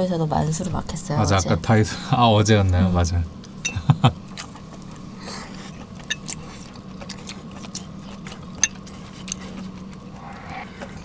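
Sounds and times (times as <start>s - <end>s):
broth simmering: 0.0s - 11.0s
steady low hum: 0.0s - 11.0s
chewing mouth sounds: 4.2s - 11.0s
chopsticks ticking: 5.8s - 11.0s.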